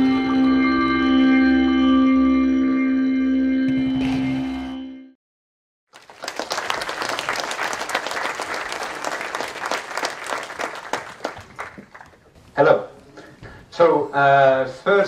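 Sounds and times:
ambient intro music: 0:00.0 - 0:05.2
audience applauding: 0:05.9 - 0:12.3.

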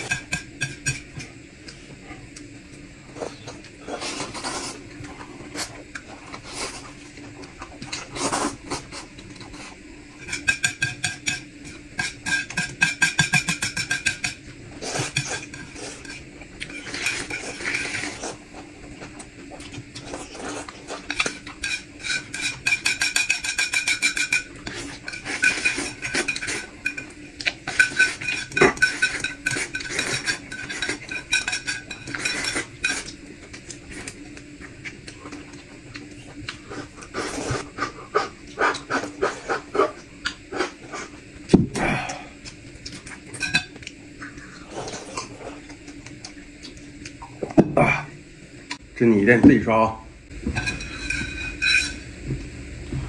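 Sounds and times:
utensils scraping a bowl: 0:07.9 - 0:18.5, 0:20.0 - 0:34.2
bowl ringing: 0:50.6 - 0:52.1.

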